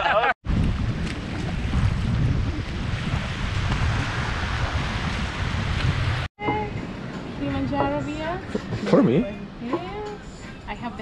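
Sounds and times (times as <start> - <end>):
wind buffeting microphone: 0.4 - 11.0
small waves washing on sand: 1.1 - 6.3.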